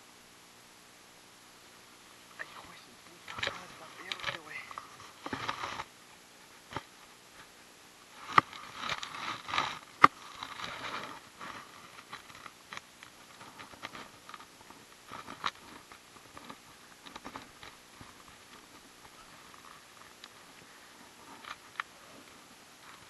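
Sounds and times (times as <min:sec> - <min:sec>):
handling clicks and rustling: 0:03.1 - 0:05.9.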